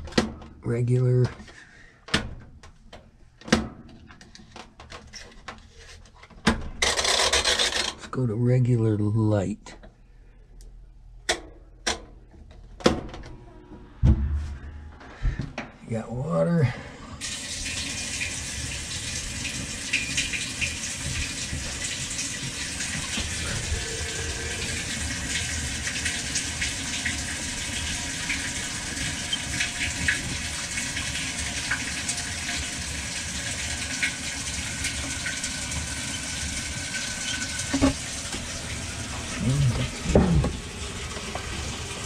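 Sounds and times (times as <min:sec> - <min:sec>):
water rushing into washing machine: 0:17.2 - 0:42.0.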